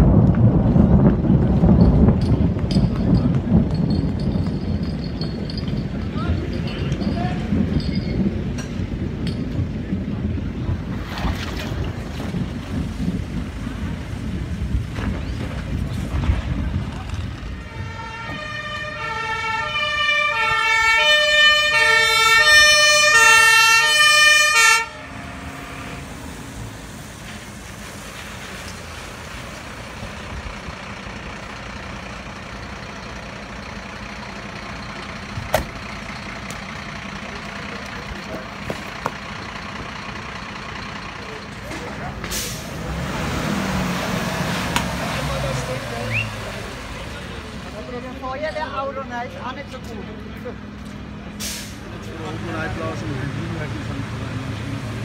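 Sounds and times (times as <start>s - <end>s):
steady low rumble: 0.0s - 18.8s
two-tone fire engine siren: 17.5s - 26.2s.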